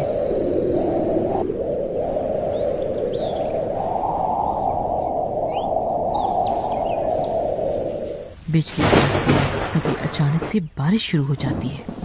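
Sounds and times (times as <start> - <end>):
bird chirps: 0.0 - 3.7, 4.5 - 7.7
strong wind blowing: 0.0 - 10.6.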